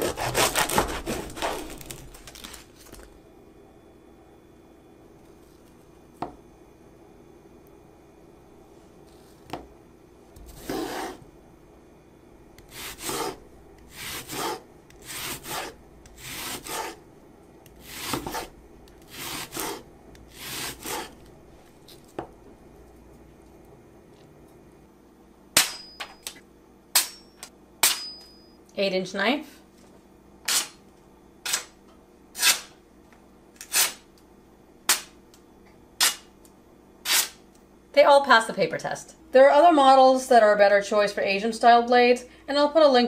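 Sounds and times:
knife slicing onion on cutting board: 0.0 - 2.0, 10.4 - 11.2, 12.6 - 17.0, 17.6 - 21.3, 30.4 - 30.8, 32.4 - 32.8, 37.0 - 37.4
knife slicing paper: 0.0 - 2.7.

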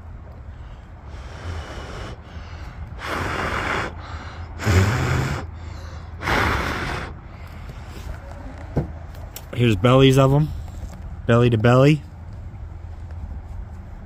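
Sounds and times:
breath puffs hissing: 0.5 - 8.1.

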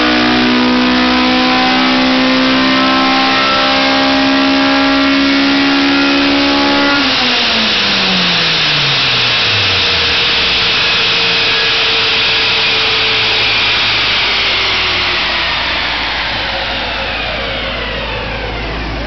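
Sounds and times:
car engine revs falling: 0.0 - 19.0
faint whine dropping in pitch: 0.0 - 19.0
dyno rollers coasting hiss: 7.2 - 18.9.

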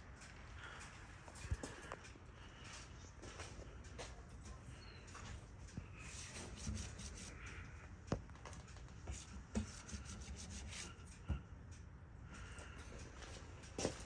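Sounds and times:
hand rubbing on painted metal: 4.5 - 7.8, 9.0 - 11.4.

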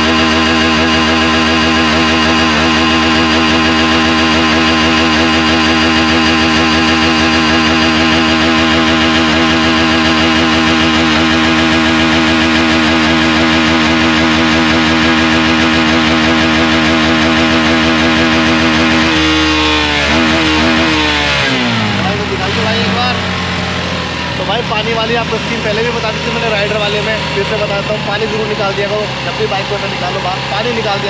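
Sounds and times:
motorcycle engine revving steadily: 0.0 - 31.0.

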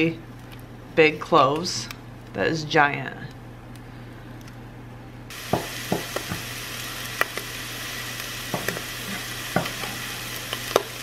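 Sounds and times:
meat sizzling in oil: 5.3 - 11.0.

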